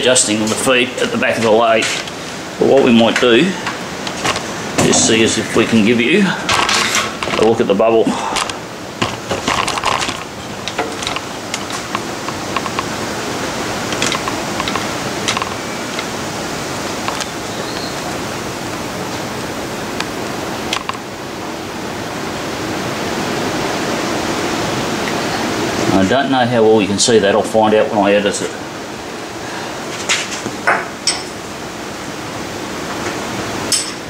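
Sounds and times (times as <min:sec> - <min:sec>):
steady hiss: 0:00.0 - 0:34.0
light clicks and knocks: 0:08.4 - 0:13.0.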